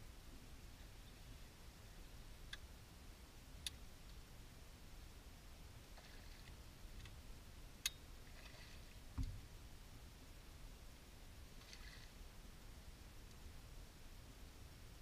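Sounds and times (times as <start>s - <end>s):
low thump on boat: 9.1s - 9.5s.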